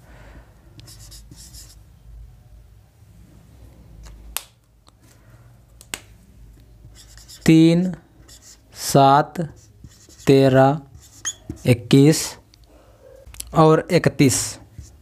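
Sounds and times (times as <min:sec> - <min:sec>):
marker squeaking on whiteboard: 0:00.8 - 0:01.8, 0:06.8 - 0:12.2, 0:14.6 - 0:15.0.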